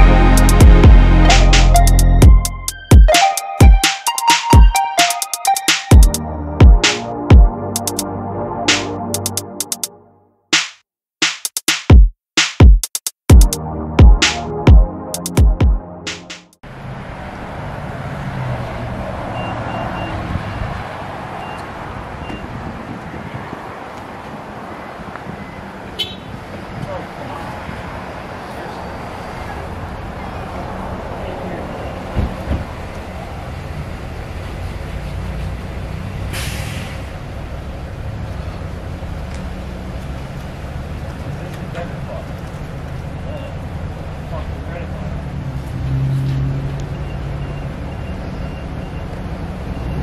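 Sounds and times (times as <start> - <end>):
traffic noise: 0.0 - 3.8, 16.2 - 50.0
short sharp hiss: 36.4 - 37.1.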